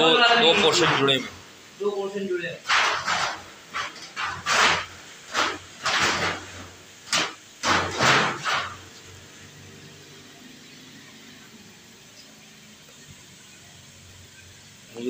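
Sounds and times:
hand scraping metal cage: 2.7 - 8.9.

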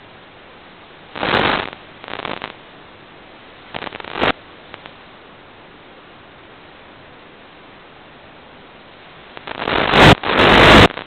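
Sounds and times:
steady radio hiss: 0.0 - 11.0
static crackle bursts: 0.8 - 5.2, 8.9 - 11.0.

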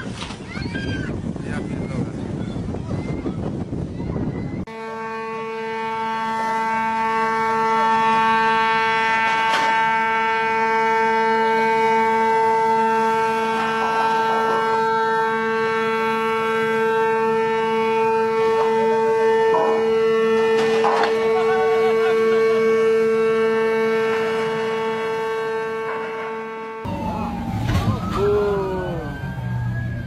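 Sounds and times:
rushing wind and water: 0.0 - 4.7
ship's horn blast: 4.7 - 30.0.

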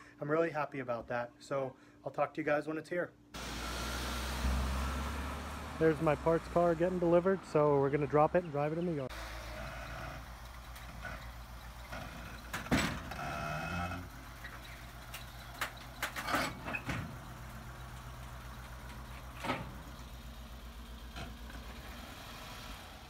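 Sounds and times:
car engine idling unevenly: 9.1 - 22.2
sharp knocks from car and trailer: 11.8 - 13.4.

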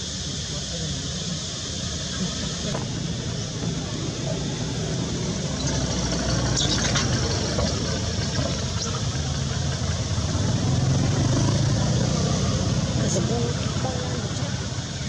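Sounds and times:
engine idling: 0.0 - 15.0.

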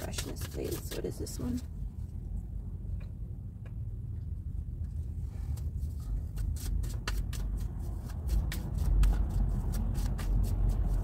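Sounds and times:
cards being shuffled: 0.0 - 1.7, 6.3 - 11.0
steady low rumble: 0.0 - 11.0.

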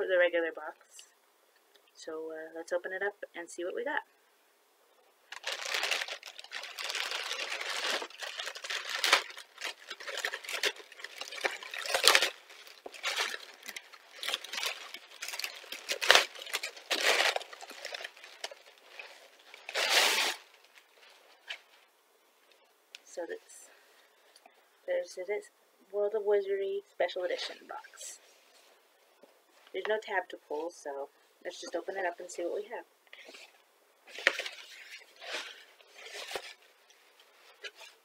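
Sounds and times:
plastic bag crinkling: 5.3 - 21.6, 34.1 - 38.0.

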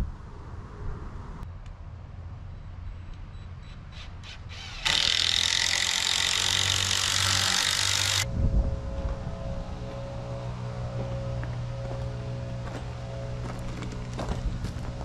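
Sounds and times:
power tool whining: 4.5 - 8.3.

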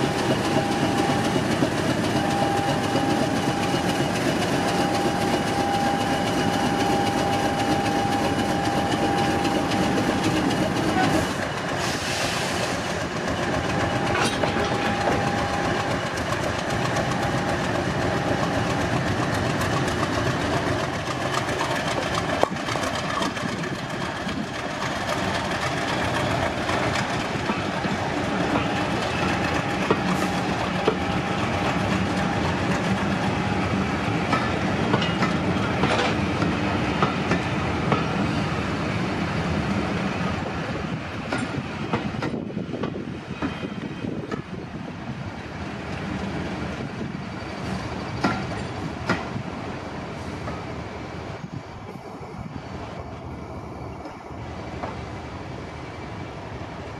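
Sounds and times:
diesel locomotive engine: 0.0 - 56.9
wheels clicking over rail joints: 12.9 - 31.2.

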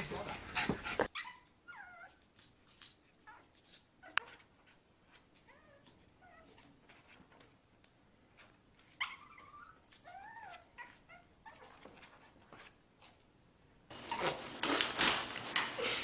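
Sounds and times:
puppy whimpering: 0.3 - 4.5, 5.4 - 6.8, 8.9 - 11.9
puppy scratching and scuffling: 8.3 - 13.2, 13.9 - 15.9.

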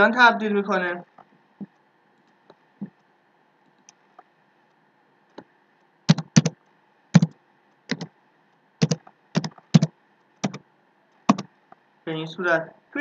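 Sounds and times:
keyboard typing: 6.1 - 6.6, 7.2 - 8.2, 8.8 - 10.6, 11.3 - 11.5.

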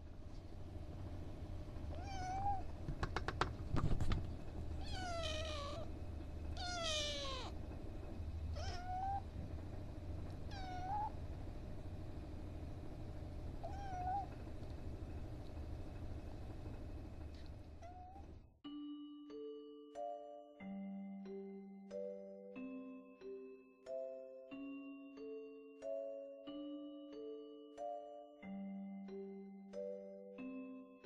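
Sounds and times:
low hum: 0.0 - 18.6
kitten mewing: 4.8 - 5.9, 6.6 - 7.6, 8.5 - 9.3, 10.5 - 11.1, 13.6 - 14.3.

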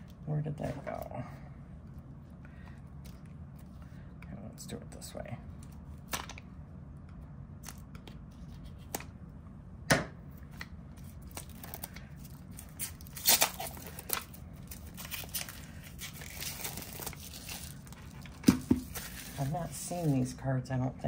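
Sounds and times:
plastic shrink-wrap crinkling and tearing: 11.0 - 19.8.

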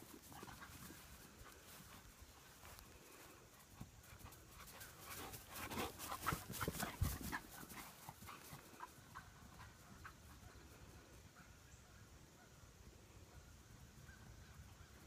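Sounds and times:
paws thudding on grass: 0.0 - 10.3
dog panting: 3.7 - 10.5.

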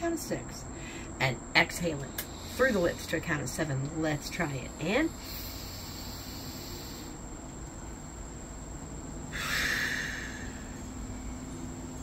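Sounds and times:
breath blown out through lips: 5.2 - 7.2, 9.3 - 10.8
breath in through nose: 5.2 - 7.2, 9.3 - 10.8.

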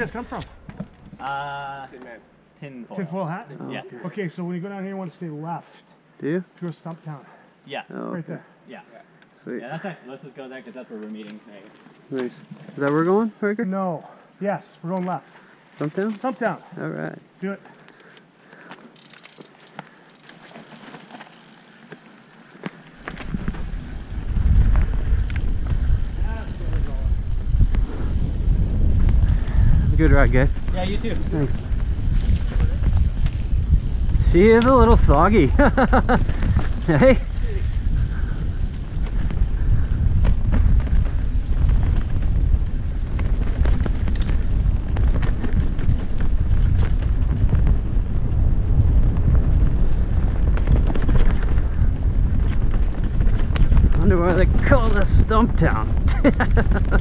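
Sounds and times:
bike clicks and rattles: 0.0 - 1.3, 17.6 - 57.0
wind rumble on microphone: 23.0 - 57.0.

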